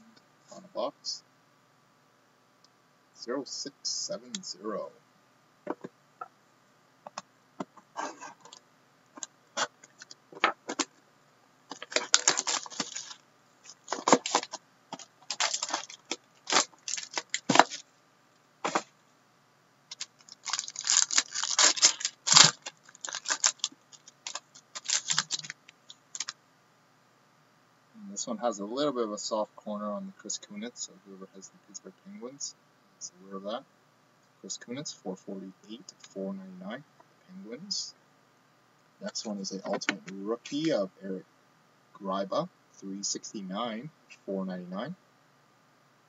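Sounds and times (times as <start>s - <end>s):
wrap and cardboard crinkling: 11.7s - 17.8s, 18.6s - 18.9s, 19.9s - 26.4s.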